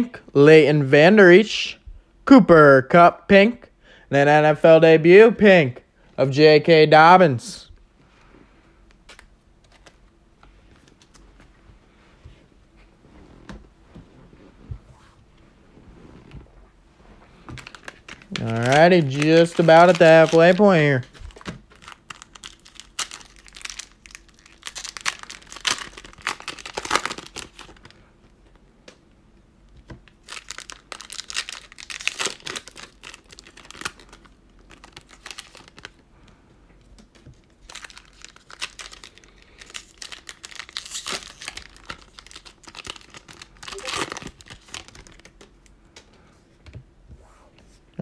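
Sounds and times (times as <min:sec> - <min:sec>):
plastic wrapper crinkling and tearing: 0:17.5 - 0:28.0, 0:30.1 - 0:36.0, 0:37.0 - 0:45.6.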